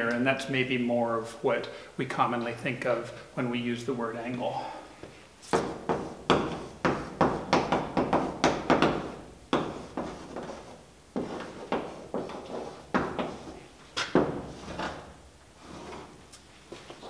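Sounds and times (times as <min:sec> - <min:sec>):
chalk tapping and scratching on blackboard: 0:05.4 - 0:15.0.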